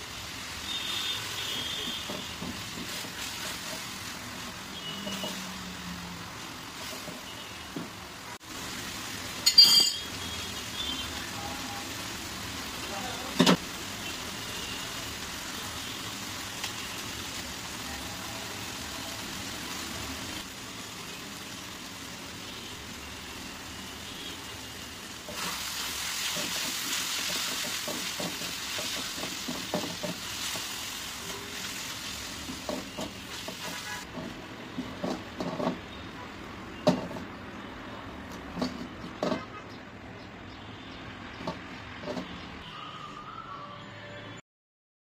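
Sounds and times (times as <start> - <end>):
mushrooms sizzling in a wok: 0.0 - 38.6
spatula scraping and knocking pan: 1.8 - 5.4, 6.8 - 7.9, 25.3 - 30.8, 32.5 - 35.9, 41.4 - 42.4.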